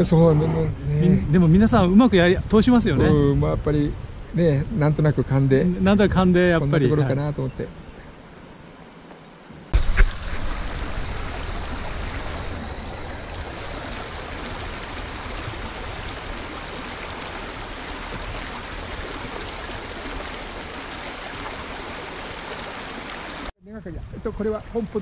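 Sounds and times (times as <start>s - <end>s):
stream flowing over rocks: 9.8s - 23.5s.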